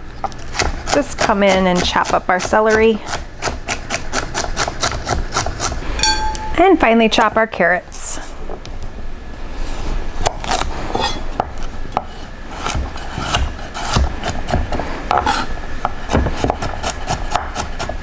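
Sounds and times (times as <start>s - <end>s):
knife chopping on wooden board: 10.2s - 18.0s.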